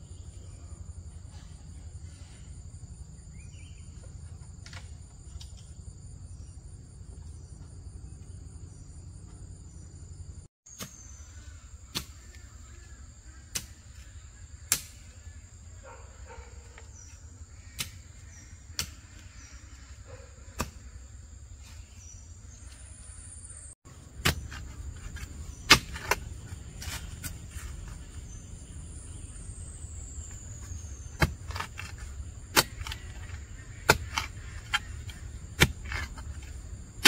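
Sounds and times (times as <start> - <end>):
insects droning: 0.0 - 37.0.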